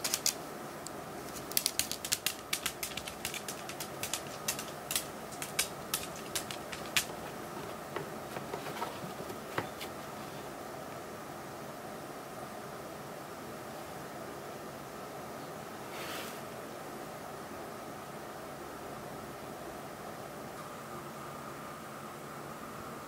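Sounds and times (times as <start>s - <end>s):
dog claws clicking on hard floor: 0.0s - 0.4s, 1.3s - 10.0s
steady hiss: 0.0s - 23.0s.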